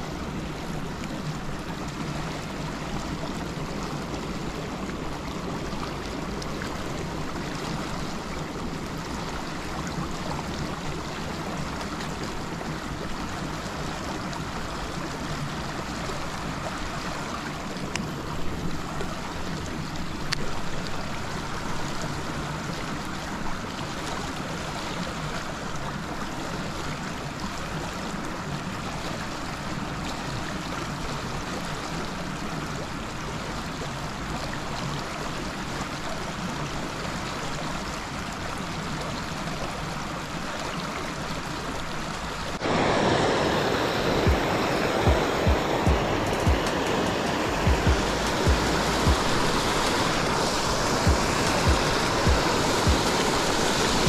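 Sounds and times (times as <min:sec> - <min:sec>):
water pouring from pipe into river: 0:00.0 - 0:54.0.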